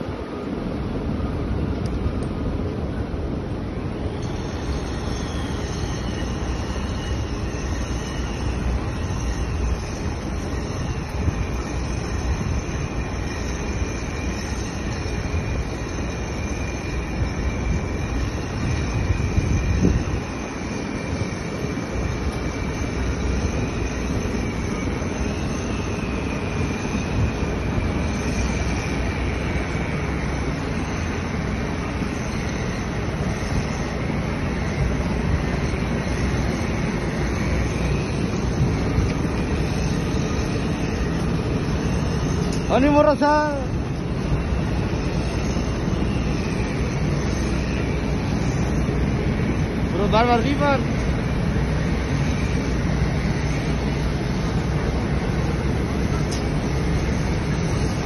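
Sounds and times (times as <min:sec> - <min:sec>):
construction machinery rumble: 0:00.0 - 0:58.0
faint wavering high whine: 0:00.0 - 0:58.0.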